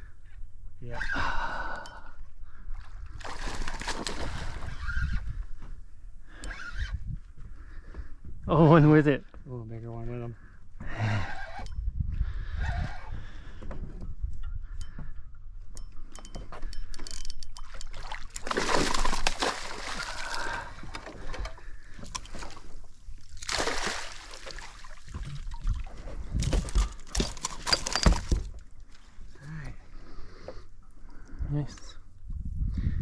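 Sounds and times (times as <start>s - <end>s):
fish thrashing and splashing: 3.2s - 4.8s, 17.9s - 28.6s.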